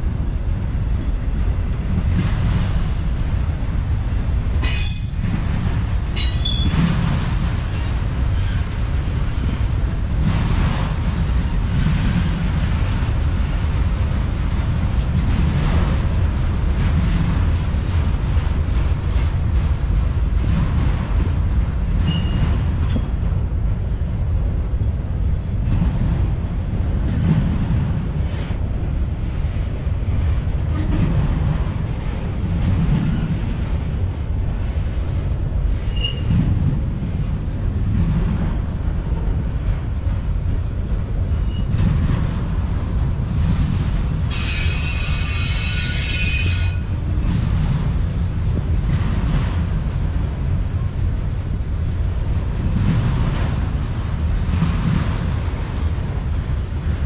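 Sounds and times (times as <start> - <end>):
train wheels rumbling on rail: 0.0 - 57.0
metal wheel squeal: 4.6 - 5.5, 22.1 - 22.4, 35.9 - 36.3, 44.3 - 47.0
faint short squeaks: 22.1 - 22.4, 35.9 - 36.3.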